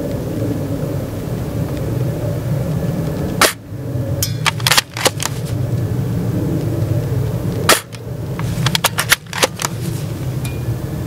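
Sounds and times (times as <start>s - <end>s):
air rifle shot: 3.4s - 3.6s, 7.7s - 8.0s
rifle bolt clicking: 4.5s - 5.3s, 8.6s - 9.7s.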